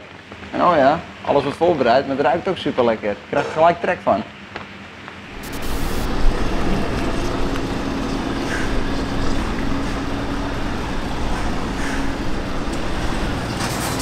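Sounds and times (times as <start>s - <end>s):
truck diesel engine at low revs: 5.4s - 14.0s.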